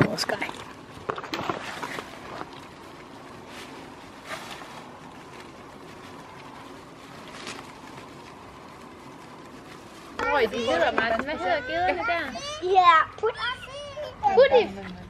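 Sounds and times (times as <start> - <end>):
leaves rustling: 0.0 - 15.0
outdoor background hiss: 0.0 - 15.0.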